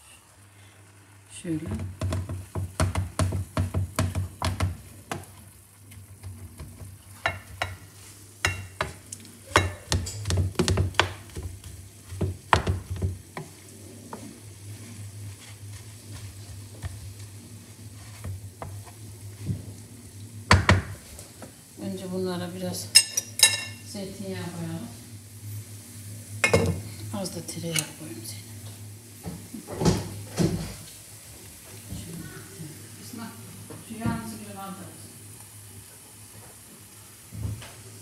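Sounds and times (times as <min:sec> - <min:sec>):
meat sizzling in a frying pan: 0:00.0 - 0:31.9, 0:32.7 - 0:38.0
wooden spoon knocking on pan: 0:01.7 - 0:05.4, 0:06.2 - 0:14.3, 0:18.2 - 0:19.5, 0:20.5 - 0:21.0
low steady hum: 0:05.3 - 0:36.2.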